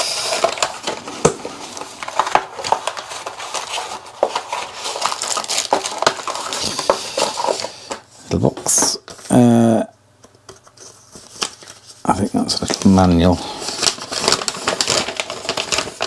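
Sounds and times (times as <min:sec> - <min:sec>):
cardboard rustling and scraping: 0:00.0 - 0:09.3.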